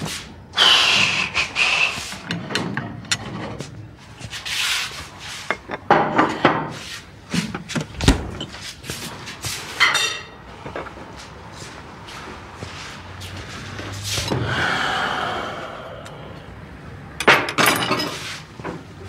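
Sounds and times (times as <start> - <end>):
refrigerator door opening and shutting: 7.3 - 8.6
crockery clinking: 17.2 - 18.2.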